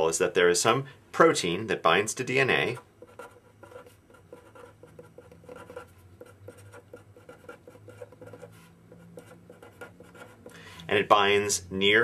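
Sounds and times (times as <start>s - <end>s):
steady low hum: 0.0s - 12.0s
pen scratching on paper: 2.7s - 10.5s.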